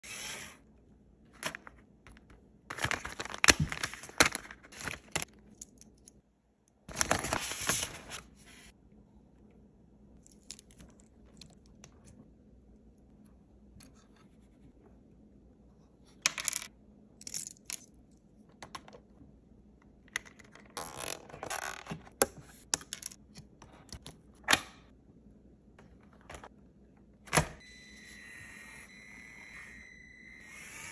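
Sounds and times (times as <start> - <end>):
faint high hum: 24.9 - 30.9.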